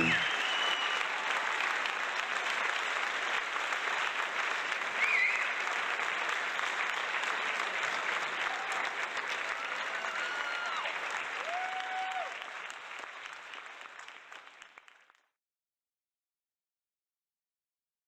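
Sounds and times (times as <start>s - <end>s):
audience applauding and cheering: 0.0s - 15.2s
short whistle: 0.1s - 1.0s.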